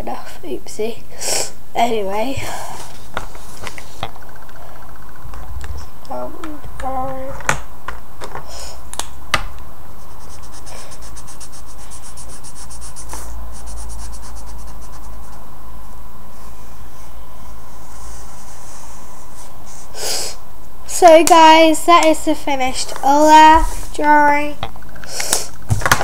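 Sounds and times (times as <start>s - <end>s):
felt-tip pen scratching on paper: 10.0s - 15.4s.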